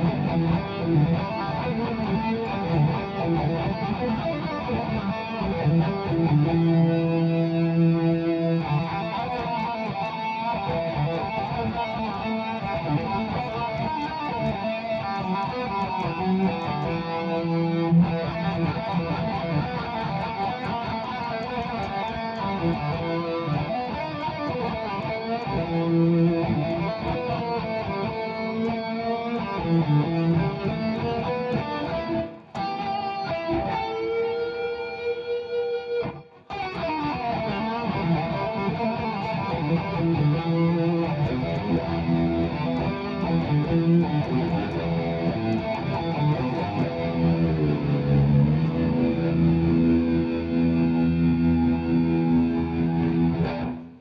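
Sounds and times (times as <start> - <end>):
electric guitar playing: 0.0 - 54.0.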